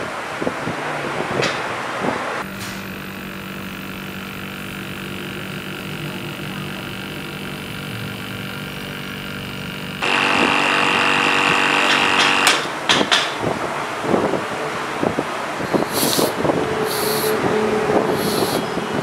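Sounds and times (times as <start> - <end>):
refrigerator compressor humming: 2.8 - 12.7.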